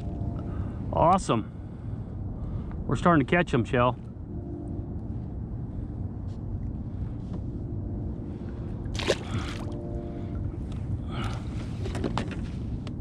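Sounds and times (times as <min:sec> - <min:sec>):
faint steady hum: 0:00.0 - 0:13.0
water lapping against kayak: 0:08.4 - 0:12.0
fish splashing into water: 0:08.9 - 0:09.8.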